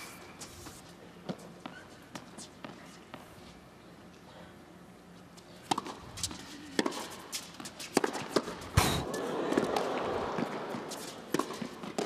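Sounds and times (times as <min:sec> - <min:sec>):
tennis ball hit by rackets: 0:05.7 - 0:12.0
crowd noise: 0:08.8 - 0:11.8.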